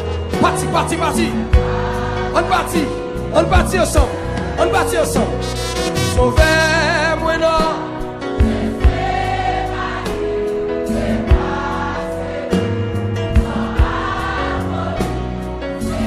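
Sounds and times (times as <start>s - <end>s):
bass: 0.0s - 16.0s
choir singing held notes: 0.3s - 6.9s, 8.2s - 16.0s.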